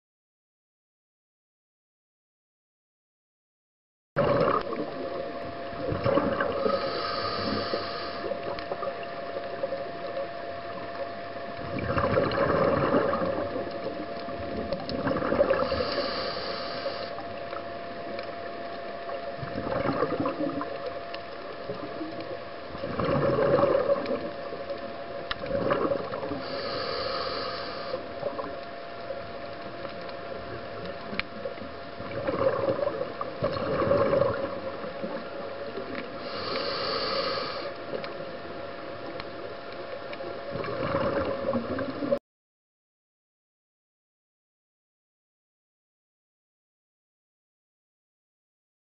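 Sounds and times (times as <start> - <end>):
exhaled bubbles gurgling: 4.2 - 42.2
scuba regulator breathing: 6.5 - 8.5, 15.5 - 17.2, 26.4 - 28.1, 36.2 - 37.9.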